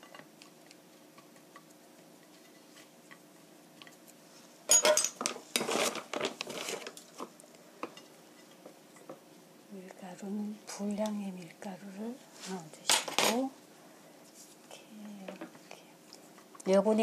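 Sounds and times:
dishes and utensils clattering: 4.7 - 7.0.

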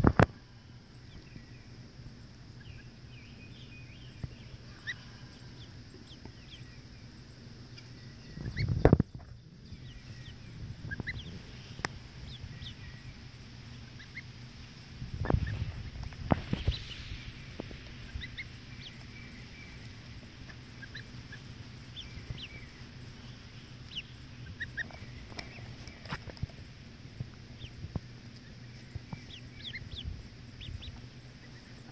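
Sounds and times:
goslings and ducklings peeping: 0.0 - 31.9.

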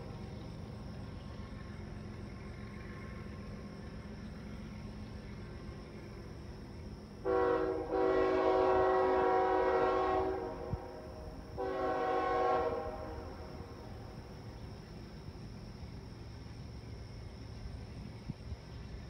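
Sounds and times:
train horn chord blasts: 7.2 - 13.8.

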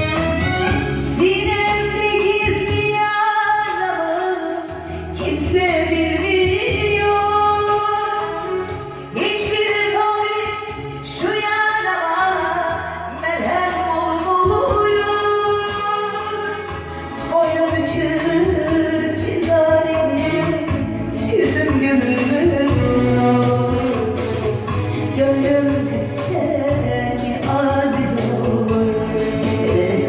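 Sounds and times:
instrumental accompaniment: 0.0 - 30.0
woman singing into a microphone: 0.6 - 30.0.

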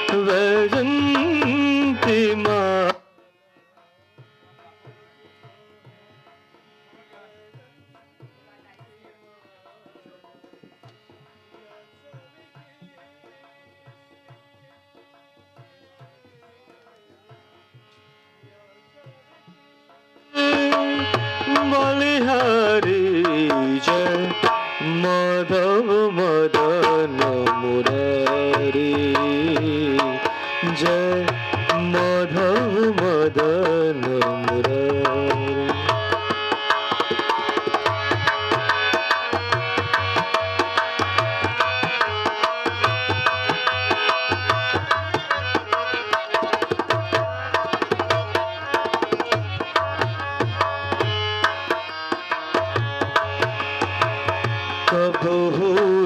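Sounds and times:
man singing: 0.0 - 3.8, 20.4 - 36.4, 37.6 - 56.0
dholak drum beat: 0.0 - 56.0
harmonium chords: 0.0 - 56.0.

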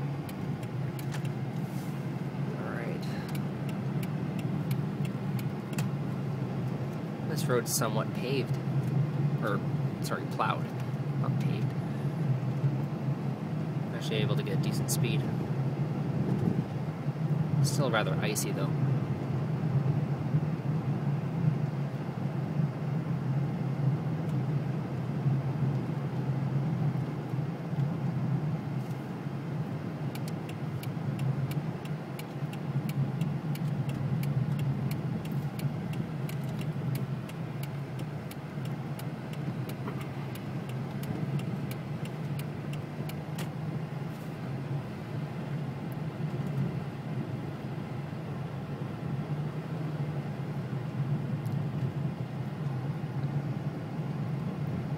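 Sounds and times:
car engine and tyre rumble: 0.0 - 54.9
light irregular ticks: 0.2 - 1.4, 3.2 - 5.9, 30.1 - 43.6.

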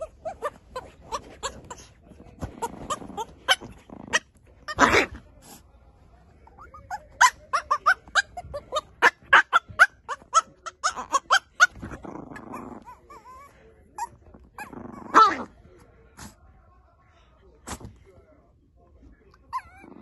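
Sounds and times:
puppy barking harshly: 2.9 - 5.2, 7.2 - 11.8
puppy yipping: 6.6 - 11.8, 19.5 - 19.8.

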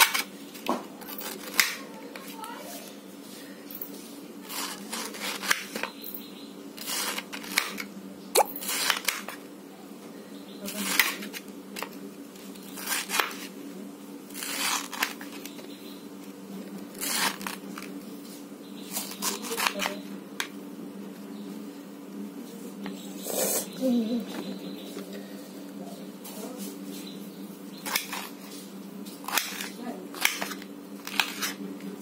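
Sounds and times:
knife slicing pineapple: 4.5 - 5.9, 6.8 - 9.4, 10.7 - 11.9, 12.6 - 13.5, 14.3 - 15.5, 16.9 - 17.8, 27.8 - 28.5, 29.2 - 31.6.

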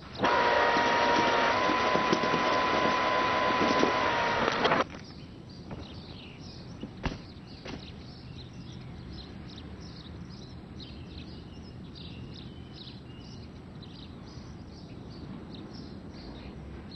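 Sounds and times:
birds chirping and twittering: 0.0 - 16.9
low outdoor hum: 0.0 - 16.9
sharp thump: 7.0 - 7.9.

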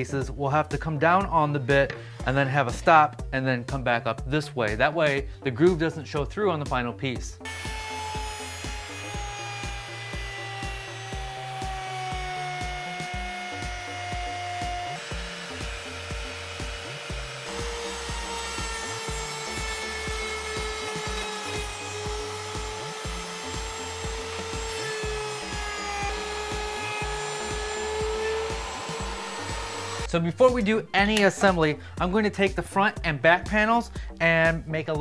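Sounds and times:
background music with beat: 0.0 - 35.0
router whining: 7.5 - 30.1.

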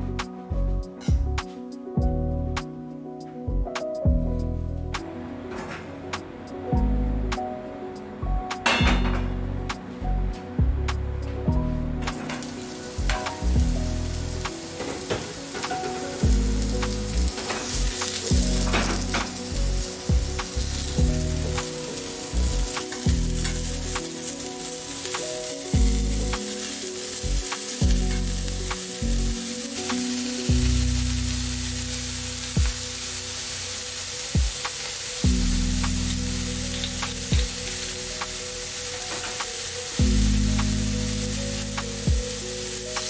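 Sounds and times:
mushrooms sizzling in frying pan: 12.1 - 43.0.

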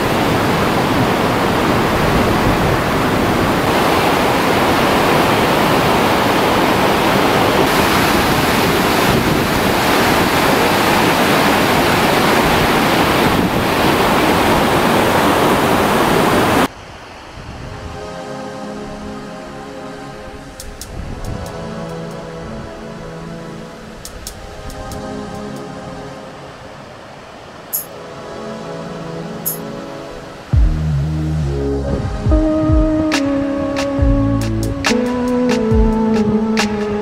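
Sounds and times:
river rapids rushing: 0.0 - 17.2
soft music: 17.6 - 37.0.

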